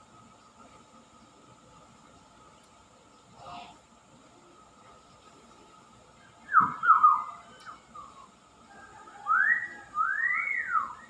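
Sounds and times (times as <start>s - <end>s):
myna bird whistling: 6.2s - 11.0s.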